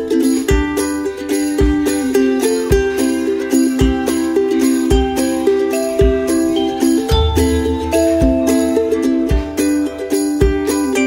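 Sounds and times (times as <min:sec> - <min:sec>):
light background music: 0:00.6 - 0:11.0
jingly high percussion: 0:05.8 - 0:11.0
low thump: 0:07.1 - 0:09.0.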